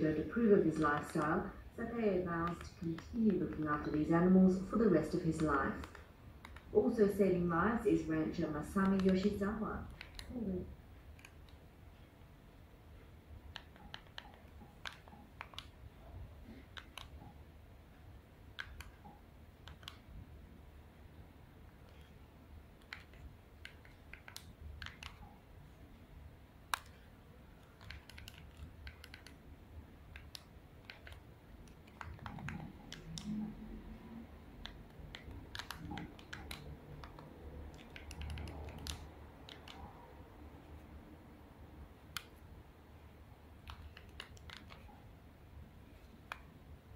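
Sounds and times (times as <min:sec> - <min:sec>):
low steady hum: 0:00.0 - 0:46.9
faint small clicks and ticks: 0:05.4 - 0:06.7, 0:18.6 - 0:20.1, 0:22.8 - 0:25.4, 0:26.7 - 0:29.4, 0:30.1 - 0:33.5, 0:34.6 - 0:40.0, 0:43.6 - 0:45.0.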